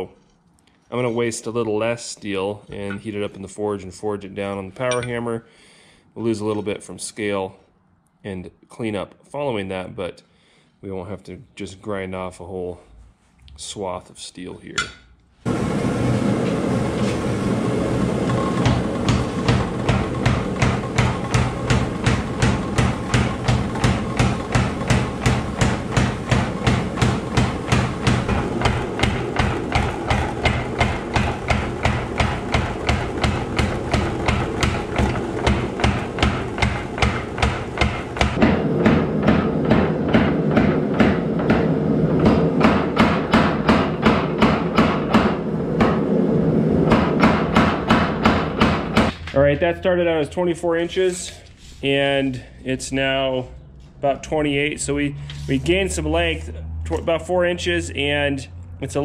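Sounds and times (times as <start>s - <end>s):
machine drive hum: 15.4s - 50.8s
power hammer striking steel: 18.2s - 46.1s, 46.8s - 49.2s.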